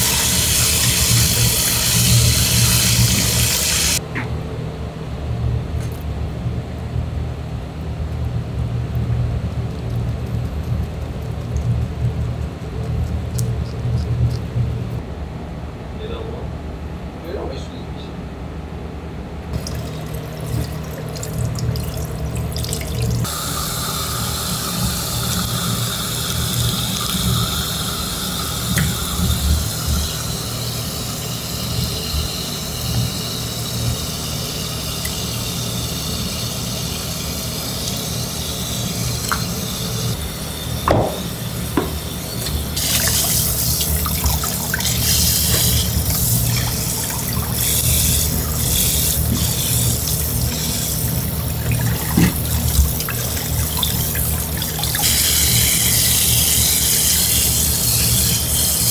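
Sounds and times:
tap water running into steel bowl: 0.0 - 4.0, 19.6 - 40.1, 40.9 - 58.9
steady low hum: 0.0 - 58.9
sharp knock: 40.9 - 42.0
hands rubbing and rinsing fish: 41.2 - 58.9.

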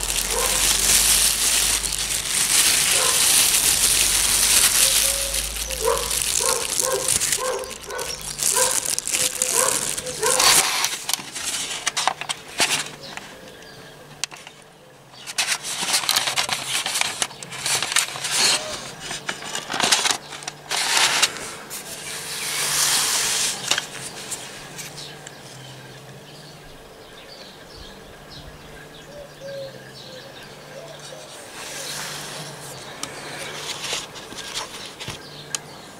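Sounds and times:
plastic wrap crinkling: 0.0 - 13.2, 15.2 - 25.1, 31.8 - 35.2.

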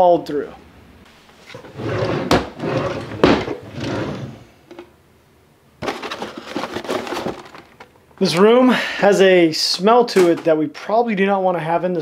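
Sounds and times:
wooden drawer opening: 1.4 - 4.9
boxes shuffling in drawer: 5.8 - 8.0.

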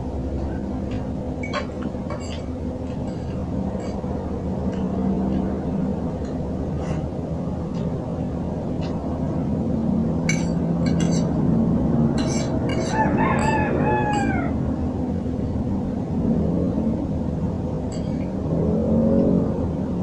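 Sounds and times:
rooster crowing: 12.8 - 14.8.

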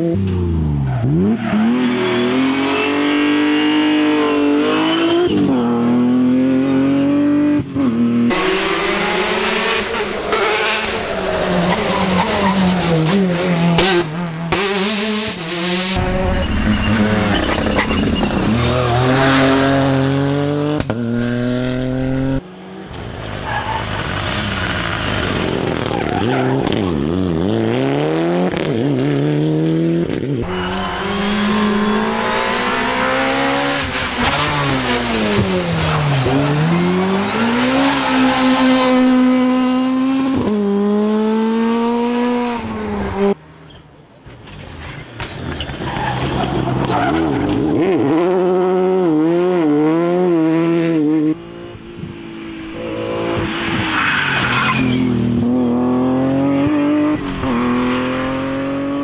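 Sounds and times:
rally car engines revving: 0.0 - 59.0
tyre squeal: 1.0 - 3.2, 16.0 - 19.6, 30.4 - 34.8, 53.6 - 55.2.

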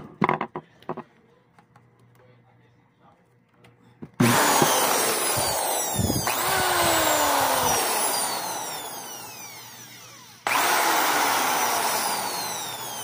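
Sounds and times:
impact drill motor running: 4.2 - 13.0.

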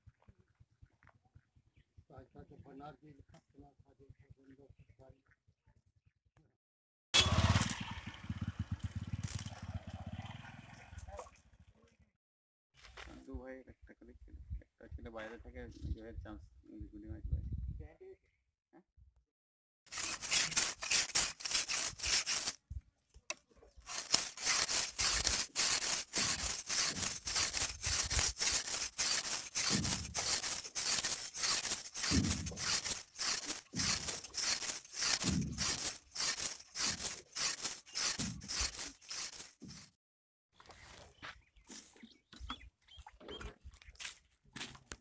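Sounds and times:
knife scraping on wooden block: 19.9 - 22.6, 23.8 - 39.9.

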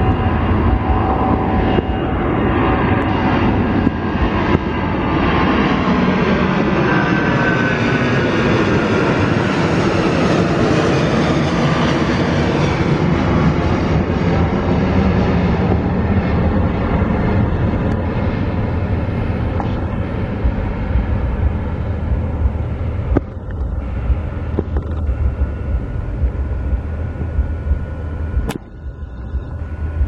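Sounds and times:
jet engines roaring: 0.0 - 30.0.

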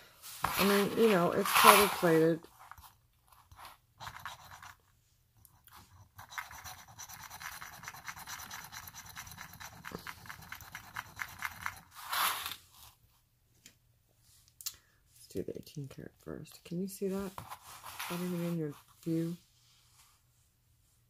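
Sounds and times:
chain scratching on stone: 0.6 - 4.8, 5.5 - 12.6.

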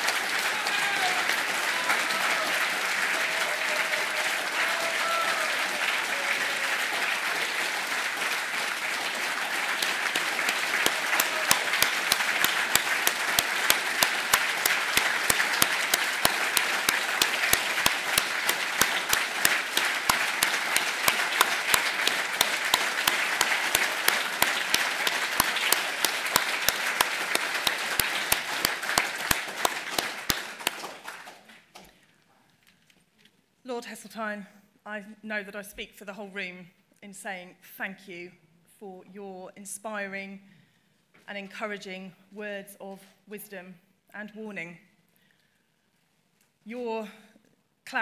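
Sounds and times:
rhythmic sharp claps: 0.0 - 31.8
audience applause: 0.0 - 31.9.

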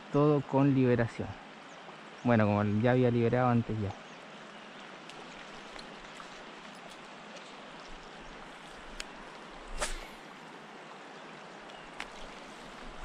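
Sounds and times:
river water flowing over stones: 0.0 - 13.0
faint clicks: 8.7 - 9.4, 11.6 - 13.0
short swish: 9.7 - 10.2.

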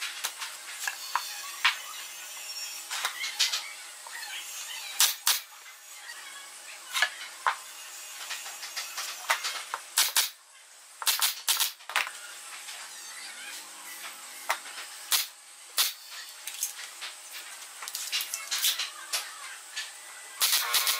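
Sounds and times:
nail gun firing with air hiss: 5.0 - 5.5, 9.0 - 10.4, 11.0 - 11.8, 15.1 - 16.1, 20.4 - 20.9.

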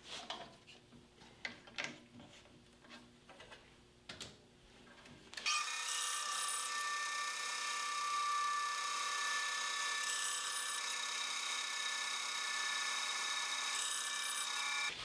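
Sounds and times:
band saw cutting wood: 5.4 - 14.9.

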